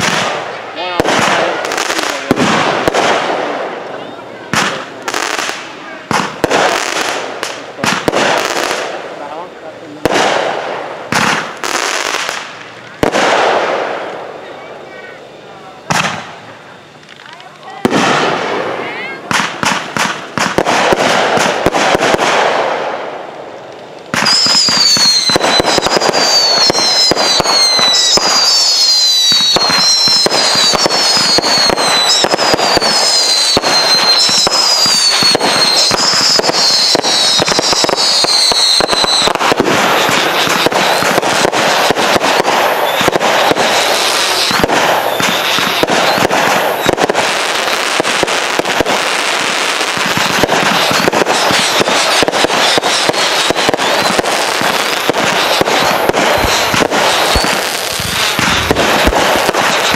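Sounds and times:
fireworks popping and crackling: 0:00.0 - 0:59.9
falling firework whistles: 0:24.1 - 0:59.9.

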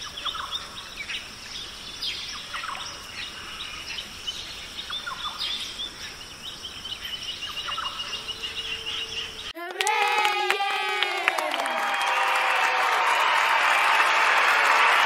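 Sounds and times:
steady high hiss: 0:00.0 - 0:09.5
small birds chirping: 0:00.0 - 0:09.6.

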